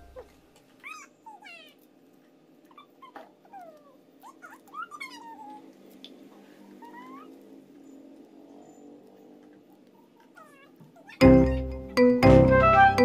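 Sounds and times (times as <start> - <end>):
small animal crying: 0.0 - 1.9, 2.6 - 5.9, 6.6 - 7.6, 10.0 - 11.6.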